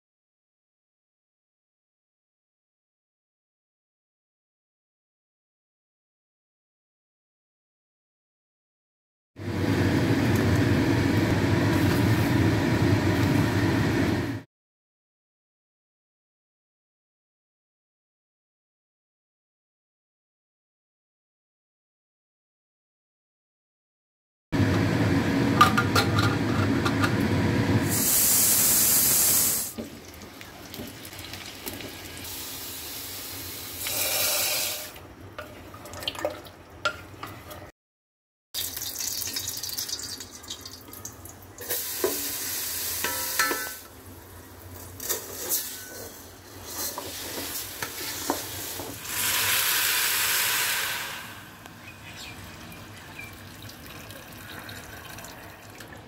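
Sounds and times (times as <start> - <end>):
metal lid clicks and clanks: 25.6 - 27.2, 43.0 - 43.9
water hissing and splashing on rice: 46.6 - 51.5.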